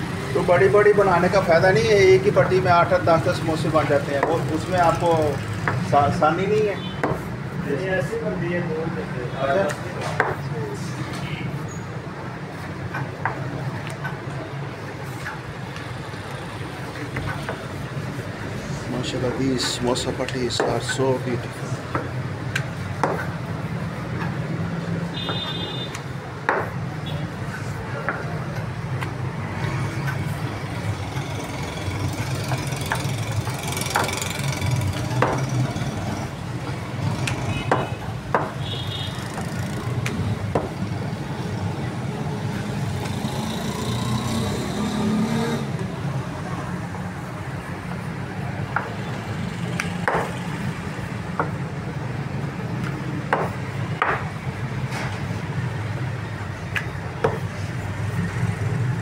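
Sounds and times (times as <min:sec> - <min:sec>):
rolling pin knocking on slab: 0:35.2 - 0:35.5.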